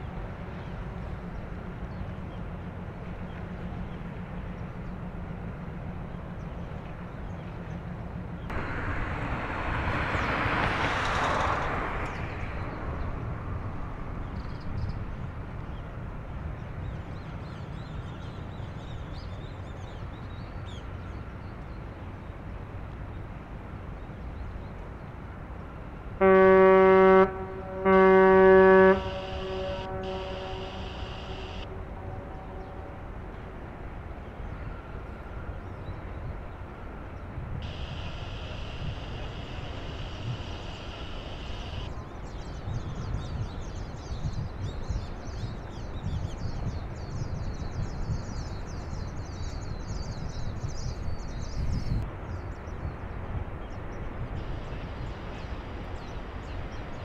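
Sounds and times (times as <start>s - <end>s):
ship's whistle blasts: 26.2s - 33.2s, 37.6s - 41.9s
steady low rumble: 27.2s - 34.6s, 37.2s - 43.8s
broad rush of noise: 28.9s - 32.1s, 37.0s - 42.8s, 52.0s - 57.0s.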